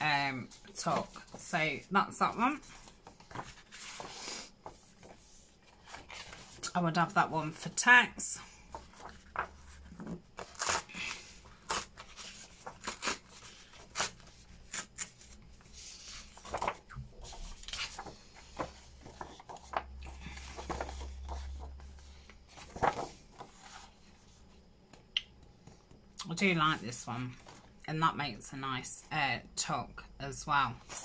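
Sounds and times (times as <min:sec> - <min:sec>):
paper sheets rustling: 0:00.3 - 0:06.7, 0:08.6 - 0:24.4.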